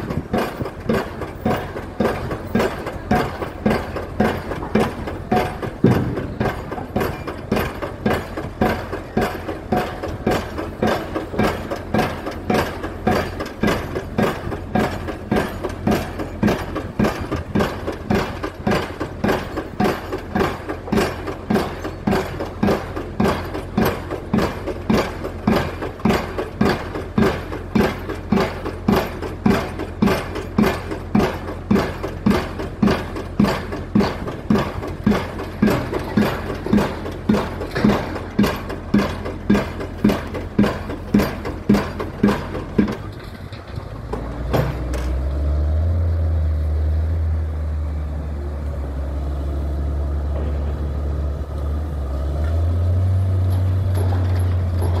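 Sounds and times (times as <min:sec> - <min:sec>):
piling rig engine running: 0:00.0 - 0:55.0
drop hammer striking concrete pile: 0:00.4 - 0:43.1.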